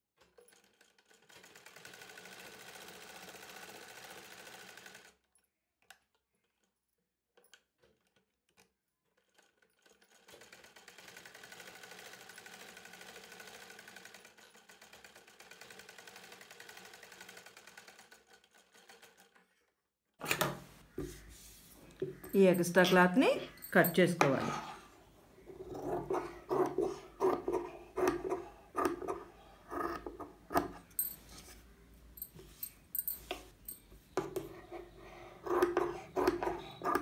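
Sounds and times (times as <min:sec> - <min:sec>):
sewing machine stitching: 0:00.2 - 0:05.2, 0:07.6 - 0:19.6, 0:25.5 - 0:30.8, 0:34.2 - 0:37.0.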